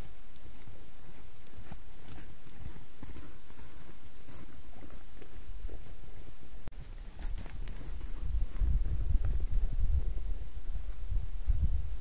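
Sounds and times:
hooves crunching in deep snow: 0.0 - 11.6
low wind rumble on microphone: 6.8 - 12.0.

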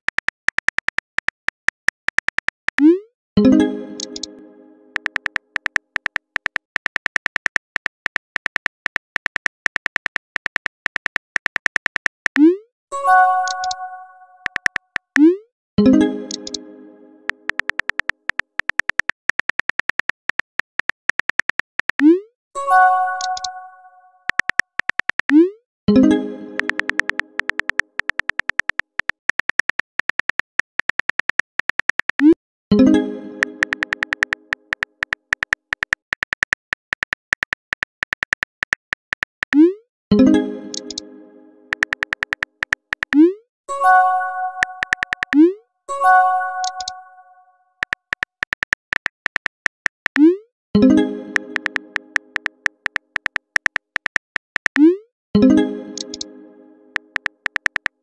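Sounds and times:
phone keyboard typing clicks: 0.0 - 2.9, 4.0 - 12.5, 13.4 - 13.8, 14.4 - 15.3, 16.3 - 16.6, 17.3 - 22.1, 23.2 - 23.6, 24.3 - 25.4, 26.6 - 32.4, 33.4 - 39.7, 40.7 - 41.0, 41.7 - 43.4, 44.6 - 45.6, 46.6 - 47.0, 47.8 - 55.0, 56.0 - 56.3, 56.9 - 58.0
message chime: 43.7 - 45.2, 45.9 - 47.4.

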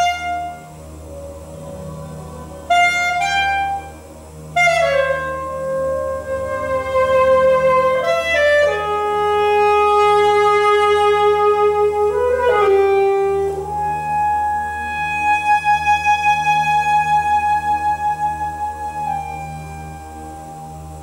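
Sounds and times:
solo saxophone long notes: 0.0 - 21.0.

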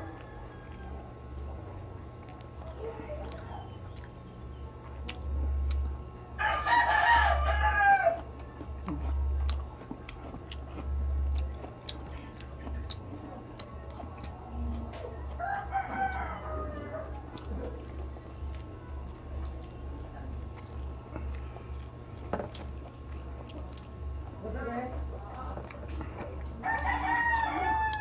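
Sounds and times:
rooster crowing: 0.0 - 1.1, 6.4 - 8.3, 15.3 - 17.4, 26.6 - 28.0
chewing clicks: 0.0 - 6.0, 8.1 - 24.4, 25.3 - 28.0.

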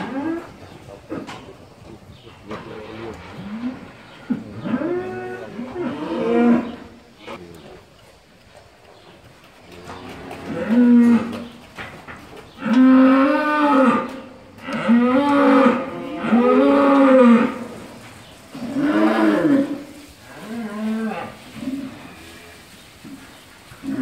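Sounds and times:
cow mooing: 2.9 - 6.9, 12.6 - 17.7.

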